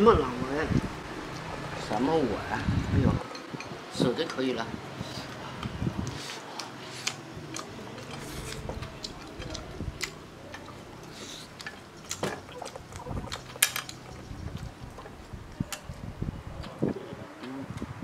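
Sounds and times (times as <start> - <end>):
chewing mouth sounds: 5.1 - 15.9.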